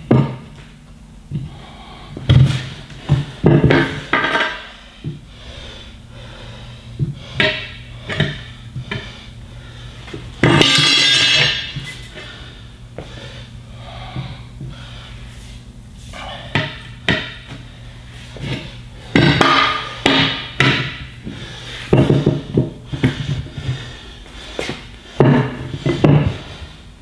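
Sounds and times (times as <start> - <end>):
tire irons clanking on metal rim: 10.4 - 12.0.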